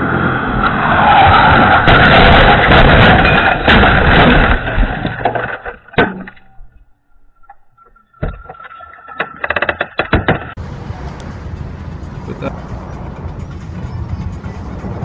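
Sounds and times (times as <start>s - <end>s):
heavy bangs: 1.3s - 5.4s
metal and glass crunching: 1.5s - 6.7s
clattering noises: 7.4s - 10.6s.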